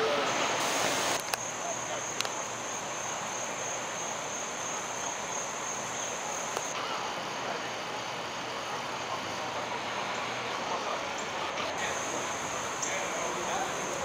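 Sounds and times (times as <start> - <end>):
background hiss: 0.0 - 14.0
insects chirring: 0.3 - 14.0.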